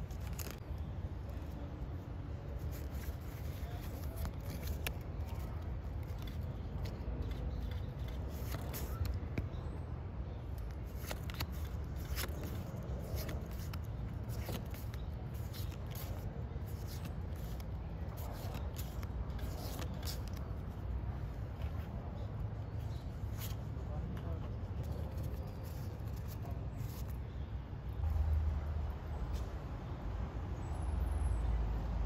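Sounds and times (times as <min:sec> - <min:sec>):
trading cards flipped by hand: 0:00.0 - 0:00.6, 0:02.6 - 0:09.6, 0:10.5 - 0:20.9, 0:23.3 - 0:27.3.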